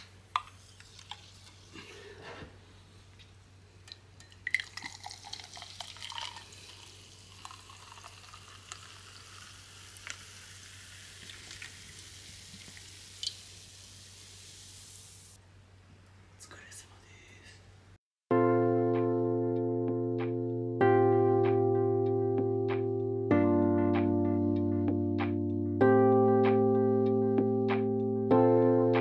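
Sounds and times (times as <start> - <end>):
carbonated drink fizzing in glass: 0.4 - 1.8, 4.3 - 15.3
glass and can clinking: 3.9 - 10.3.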